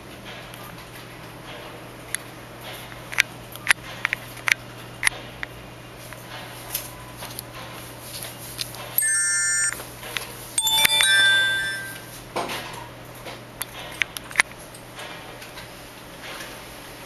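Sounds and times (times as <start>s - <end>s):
bell-like chime: 9.0s - 9.8s, 10.6s - 12.2s
short flat electronic tone: 9.0s - 9.8s.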